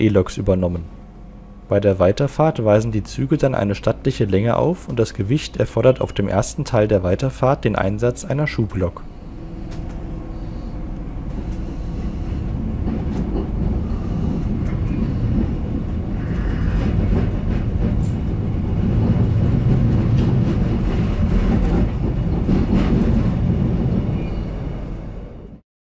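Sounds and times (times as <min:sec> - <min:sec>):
railcar engine and running rumble: 0:00.0 - 0:25.6
wheels clicking over rail joints: 0:11.0 - 0:23.3.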